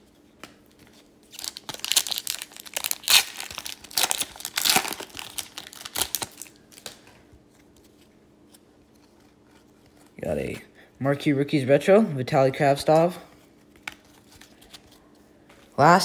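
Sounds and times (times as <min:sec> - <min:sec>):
foil wrapper crinkling and tearing: 0:01.3 - 0:07.0.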